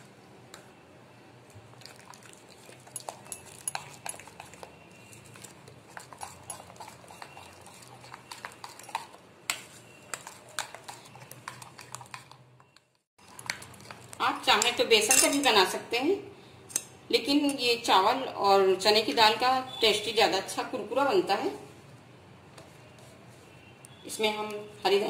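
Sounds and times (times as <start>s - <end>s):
hand squishing batter in bowl: 1.6s - 14.2s.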